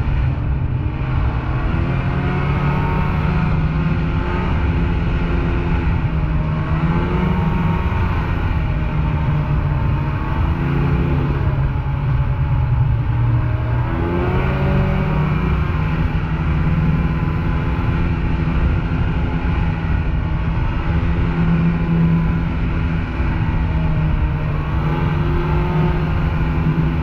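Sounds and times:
snowmobile engine running: 0.0s - 27.0s.

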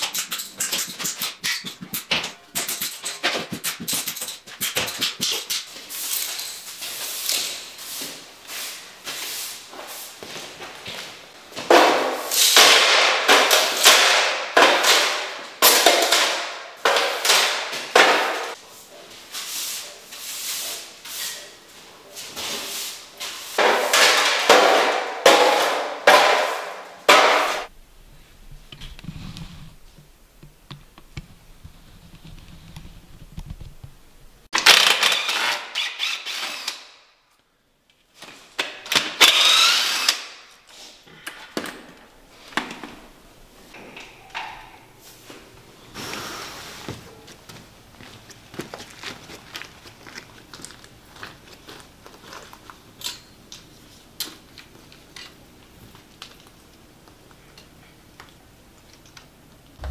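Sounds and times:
push broom sweeping tile floor: 0.0s - 27.7s, 45.0s - 47.3s.

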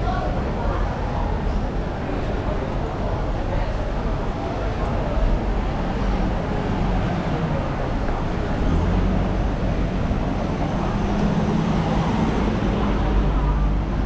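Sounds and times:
street traffic noise: 0.0s - 14.0s
vehicle engine humming: 4.8s - 14.0s.

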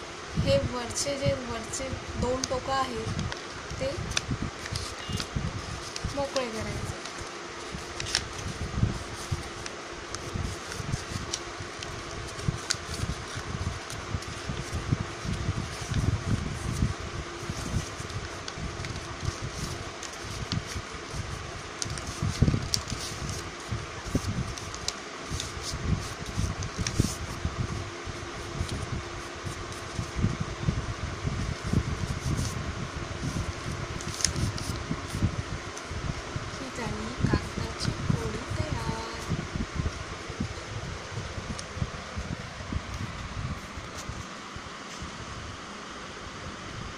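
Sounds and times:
steady background hum: 0.0s - 46.9s
paper folding and rustling: 2.3s - 30.4s, 31.3s - 32.6s, 33.2s - 35.9s.

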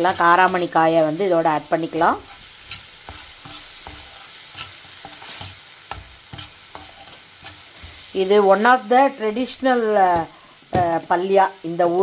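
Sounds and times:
faint sizzle of frying in oil: 0.0s - 12.0s
metal spatula scraping a pan: 1.8s - 10.5s.

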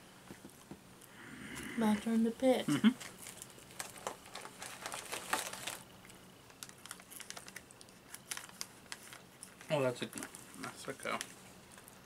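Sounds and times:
plastic wrapper crinkling: 3.0s - 12.0s.

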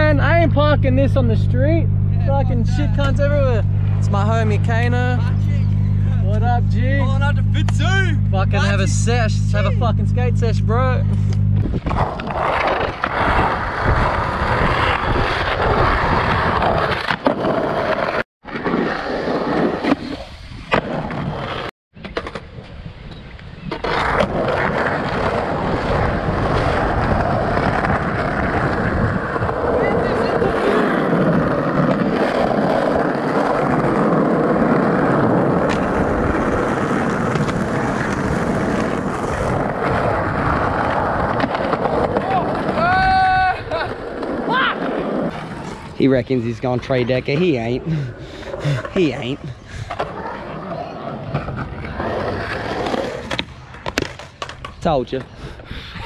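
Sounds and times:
skateboard wheels rolling on concrete: 11.1s - 56.0s
skateboard clacks: 23.7s - 45.9s, 49.9s - 55.4s.

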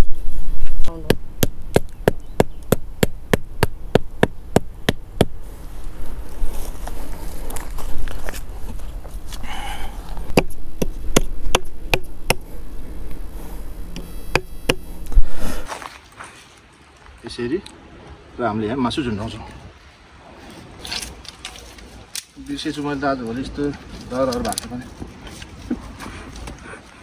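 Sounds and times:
blade knocking on wooden stake: 1.0s - 5.4s, 10.3s - 12.5s, 14.3s - 14.9s.

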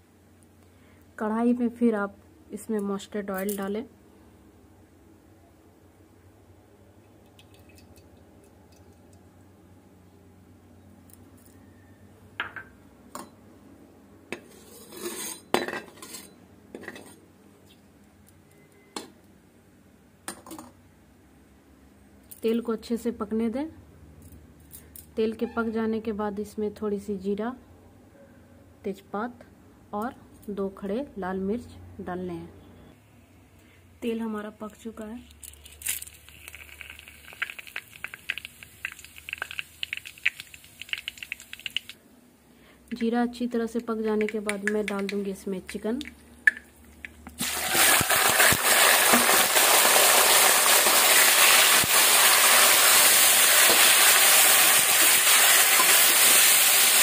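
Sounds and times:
spices sizzling in hot oil: 35.5s - 42.0s, 47.4s - 57.0s.

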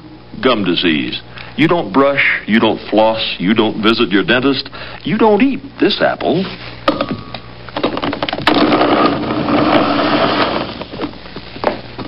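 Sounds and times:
blender motor chopping apple: 8.4s - 11.0s.

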